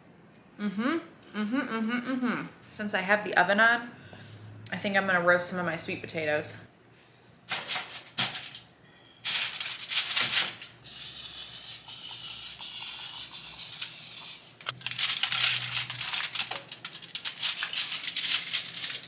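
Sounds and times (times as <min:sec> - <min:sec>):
aluminium foil crinkling: 0:07.5 - 0:10.8, 0:13.8 - 0:19.0
cooking spray hissing: 0:10.8 - 0:14.7.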